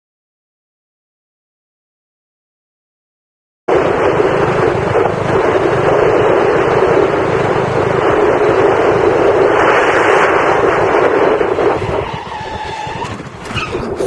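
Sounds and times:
motorcycle engine running: 3.7s - 11.8s
wind rush on microphone: 3.7s - 14.0s.

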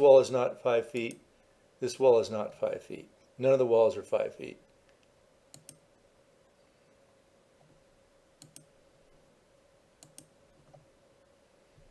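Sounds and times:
faint steady hum: 0.0s - 11.9s
computer mouse clicks: 4.9s - 5.8s, 8.4s - 8.7s, 10.0s - 10.9s.

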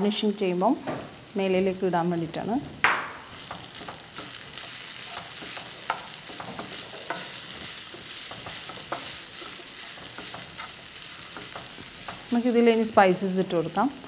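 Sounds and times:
oil sizzling: 0.0s - 14.0s
wooden spatula scraping frying pan: 3.3s - 12.6s.

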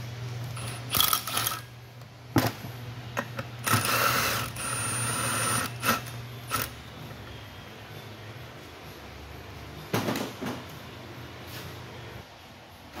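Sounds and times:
cordless driver whirring: 3.6s - 6.7s.

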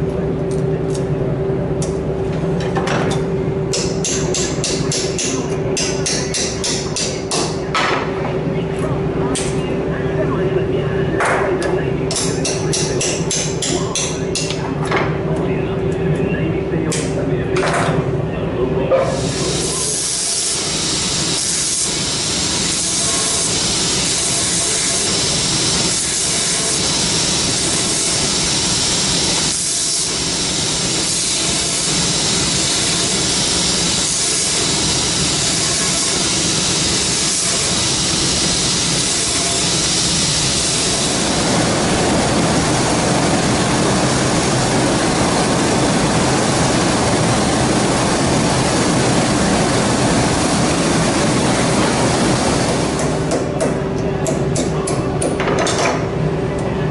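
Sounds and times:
knife hissing on grinding wheel: 19.2s - 42.0s.

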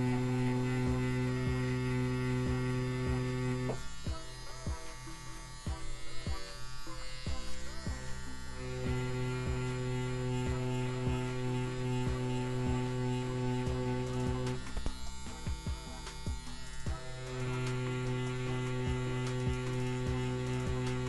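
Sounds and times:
tattoo machine buzzing: 0.0s - 21.0s.

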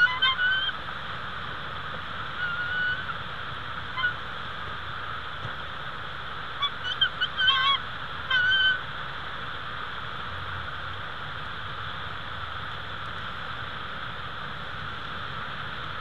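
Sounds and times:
eagle calling: 0.0s - 0.9s, 2.2s - 4.3s, 6.6s - 8.9s
background hiss: 0.0s - 16.0s.

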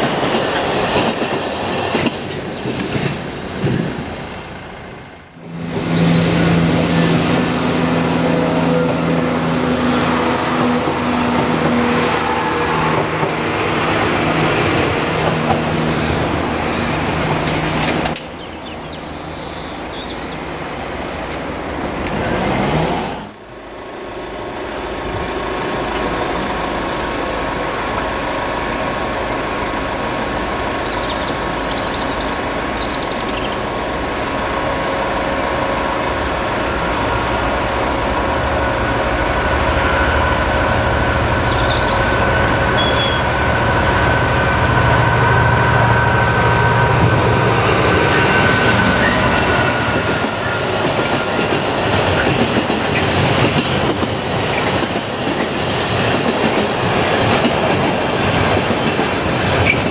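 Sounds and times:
diesel locomotive engine approaching: 0.0s - 59.9s
train moving away: 0.0s - 59.9s.

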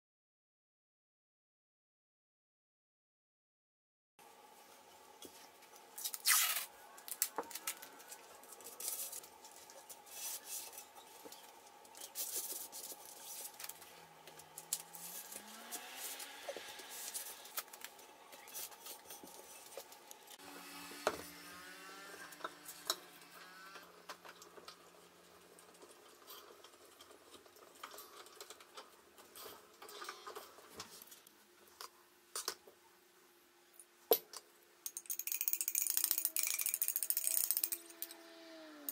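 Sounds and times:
masking tape tearing and rasping: 6.0s - 9.2s, 14.6s - 19.0s.

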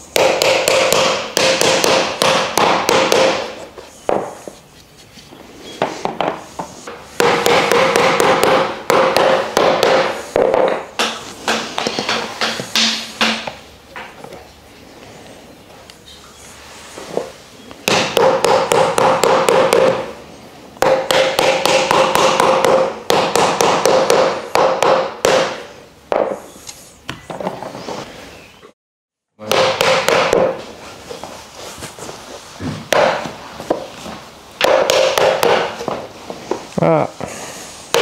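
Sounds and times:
mallet tapping wooden slats: 0.1s - 4.3s, 6.2s - 14.1s, 17.9s - 20.1s, 20.8s - 26.4s, 29.4s - 30.6s, 32.9s - 33.8s, 34.6s - 36.0s.

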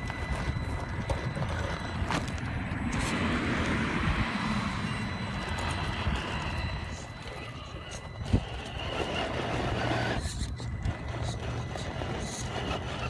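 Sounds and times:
tyres crunching on stones: 0.0s - 3.8s
high electric motor whine: 0.0s - 13.0s.

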